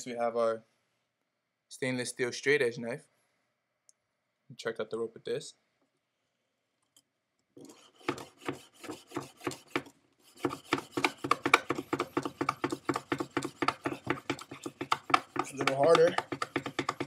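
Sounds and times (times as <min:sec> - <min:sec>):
knife sawing rope: 0:07.6 - 0:17.0.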